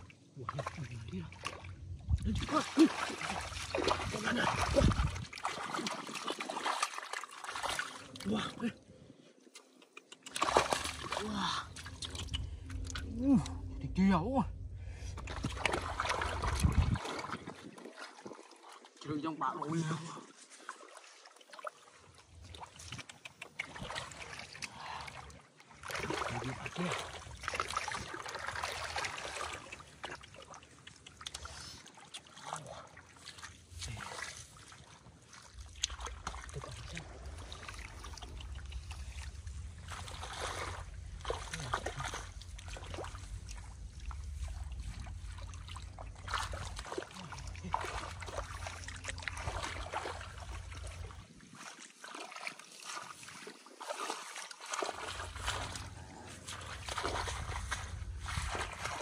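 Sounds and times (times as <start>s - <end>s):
steady low rumble: 0.0s - 6.0s, 10.3s - 17.9s, 35.1s - 51.4s, 54.9s - 59.0s
water splashing and sloshing: 0.0s - 59.0s
water trickling: 20.4s - 59.0s.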